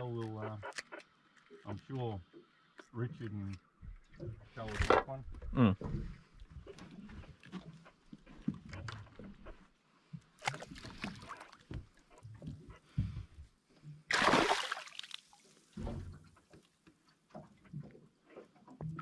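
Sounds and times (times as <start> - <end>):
big splash: 14.1 - 15.1
fish splashing at water surface: 14.1 - 15.4.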